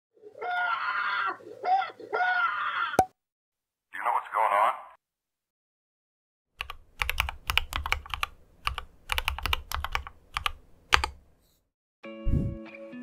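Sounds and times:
mechanical keyboard typing: 0:06.6 - 0:11.2.

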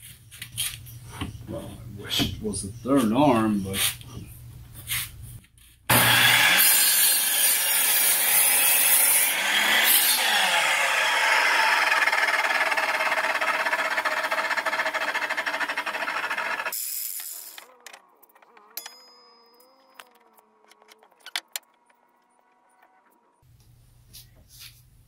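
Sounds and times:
miter saw cutting wood: 0:05.9 - 0:18.8.

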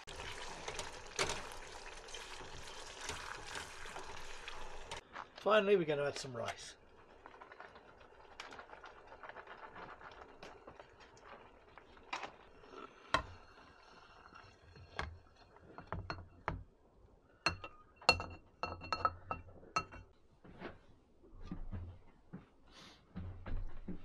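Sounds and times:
utensil scraping and knocking saucepan: 0:14.7 - 0:16.6, 0:17.5 - 0:20.1.

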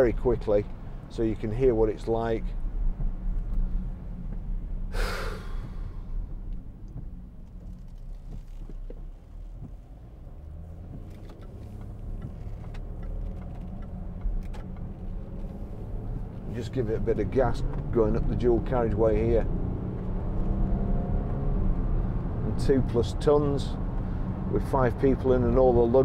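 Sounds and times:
diesel engine drone in cabin: 0:00.0 - 0:26.0
tyres on wet road: 0:00.0 - 0:26.0
breathy rush: 0:04.9 - 0:06.2.

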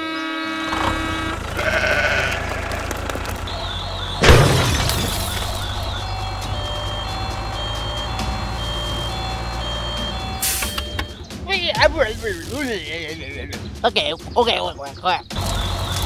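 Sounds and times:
low engine rumble: 0:00.5 - 0:13.4
sheep bleating: 0:00.6 - 0:03.4.

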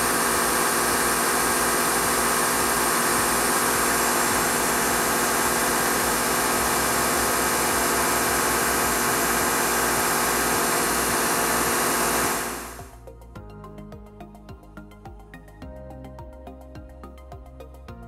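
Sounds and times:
planer machine whirring: 0:00.0 - 0:12.9.

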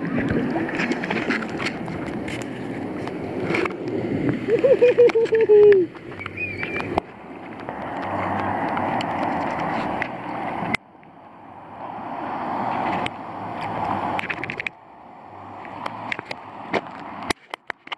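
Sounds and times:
seawater sloshing against camera: 0:00.0 - 0:10.8
small clicks and splashes: 0:00.0 - 0:11.2, 0:12.6 - 0:14.8, 0:15.6 - 0:17.9.

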